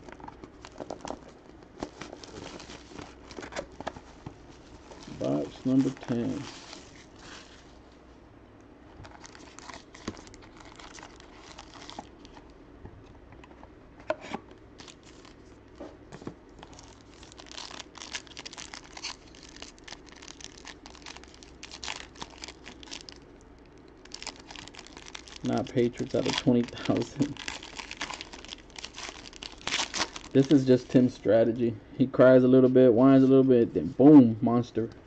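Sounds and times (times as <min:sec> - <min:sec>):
plastic wrapping tearing and crinkling: 0:00.6 - 0:03.8, 0:09.0 - 0:12.5, 0:14.8 - 0:15.4, 0:16.6 - 0:23.2, 0:23.9 - 0:31.0.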